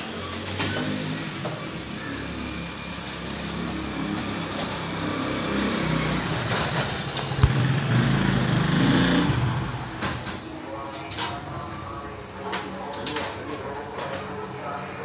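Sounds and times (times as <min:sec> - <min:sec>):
motorcycle engine running: 0:06.7 - 0:09.8.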